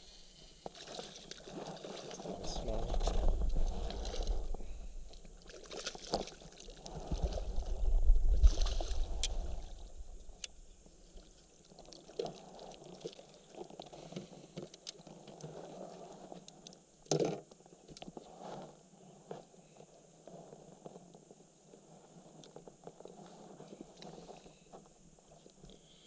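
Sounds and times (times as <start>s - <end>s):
low microphone rumble: 2.2s - 5.4s, 6.9s - 10.9s.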